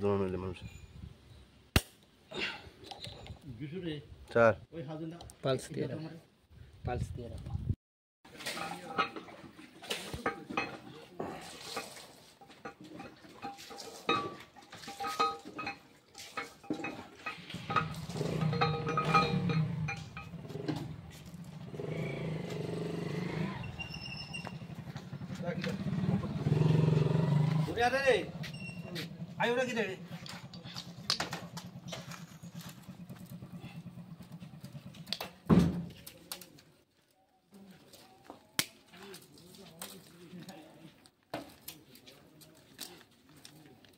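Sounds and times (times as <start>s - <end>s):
metal parts clinking: 13.4s - 20.4s
engine running: 17.3s - 35.3s.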